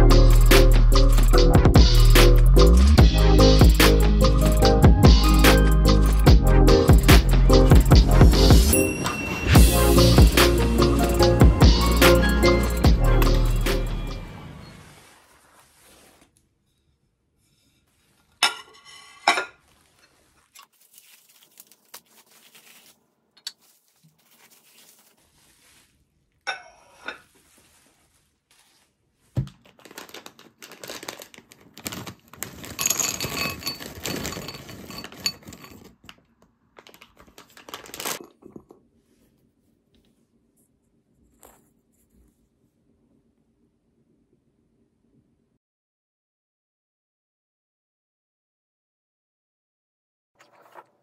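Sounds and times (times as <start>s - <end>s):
dishes clinking: 18.3s - 20.2s
wrapping crinkling and tearing: 19.6s - 26.0s, 27.3s - 38.3s.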